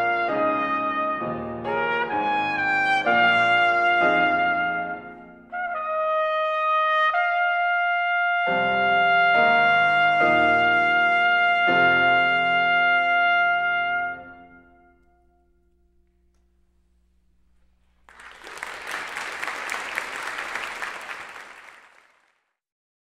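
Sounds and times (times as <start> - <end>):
piano chords: 0.0 - 7.2, 8.3 - 16.4
trumpet: 0.0 - 16.4.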